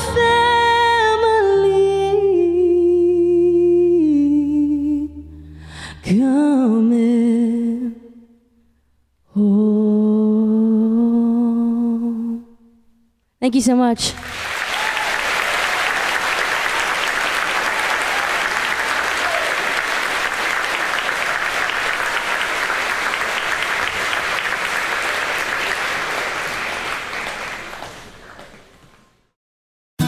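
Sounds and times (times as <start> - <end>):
audience applauding: 14.2 - 29.2.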